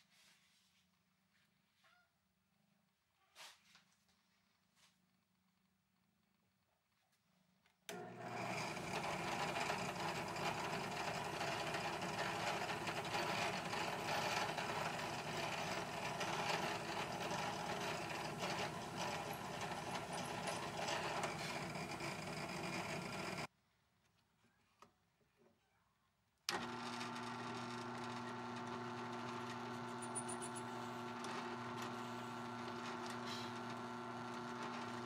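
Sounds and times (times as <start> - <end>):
drill press drilling into steel: 7.9 - 23.5, 26.5 - 35.0.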